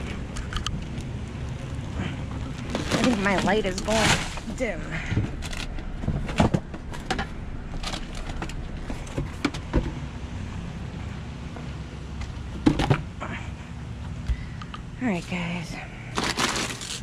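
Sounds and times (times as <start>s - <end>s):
steady low hum: 0.0s - 17.0s
snack bags rustling: 2.4s - 4.5s, 16.1s - 17.0s.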